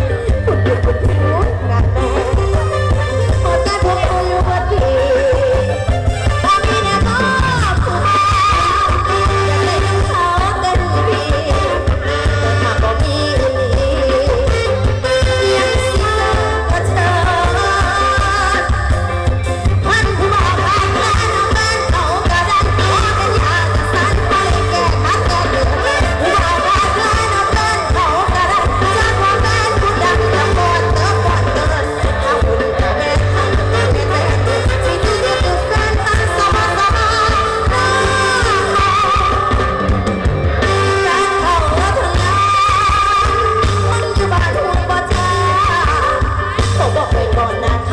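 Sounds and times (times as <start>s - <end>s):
heavy pulsing bass: 0.0s - 12.0s
woman singing: 0.0s - 40.0s, 40.6s - 47.9s
drums: 0.0s - 47.9s
electric guitar: 0.0s - 47.9s
keyboard: 0.0s - 47.9s
live band music: 0.0s - 47.9s
steady bass: 0.0s - 47.9s.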